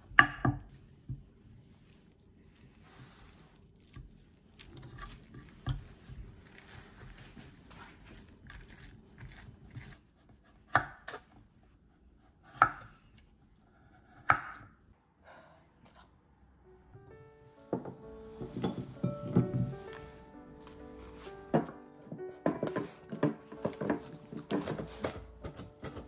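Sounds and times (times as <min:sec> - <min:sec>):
knife cutting and scraping: 0:02.6 - 0:11.3.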